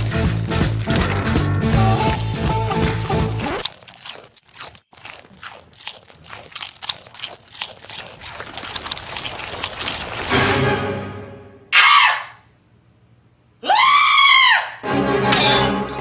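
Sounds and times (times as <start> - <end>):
goat crunching chips: 0.0 - 10.6.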